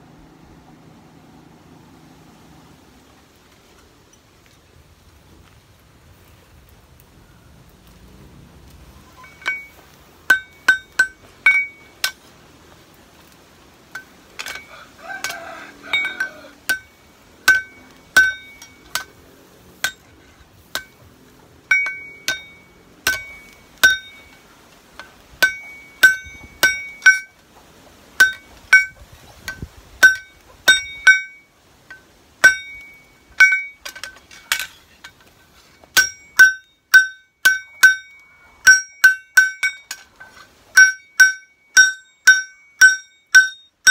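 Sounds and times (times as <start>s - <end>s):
hammer ringing on anvil: 9.2s - 12.2s, 14.4s - 19.1s, 21.7s - 24.4s, 25.4s - 27.3s, 30.0s - 31.5s, 32.4s - 33.8s, 36.0s - 40.0s, 40.8s - 43.9s.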